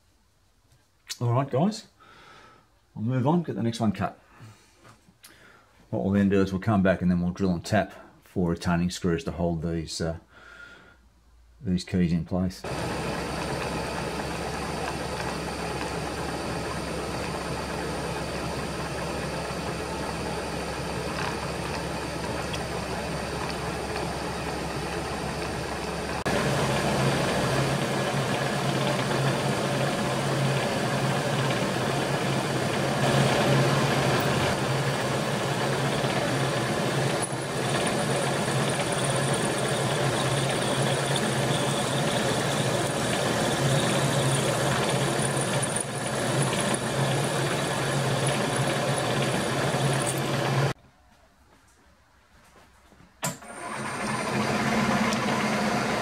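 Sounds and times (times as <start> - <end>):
drill drilling metal: 12.7 - 50.8
milling machine cutting metal: 12.7 - 50.8, 53.4 - 56.0.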